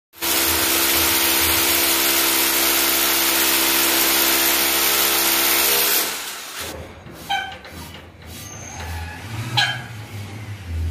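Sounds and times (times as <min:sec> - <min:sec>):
core drill grinding concrete: 0:00.1 - 0:07.6.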